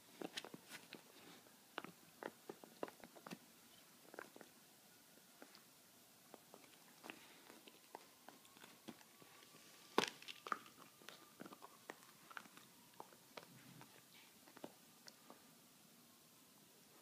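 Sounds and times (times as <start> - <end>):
dog gnawing on a hard chew: 0.2 - 3.4, 4.0 - 4.6, 6.3 - 9.4, 10.0 - 15.2.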